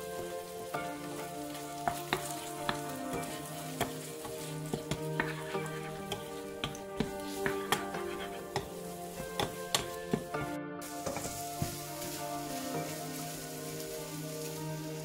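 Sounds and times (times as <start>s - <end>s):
food sizzling in a wok: 0.0s - 15.0s
spatula tapping against pan: 1.8s - 10.4s.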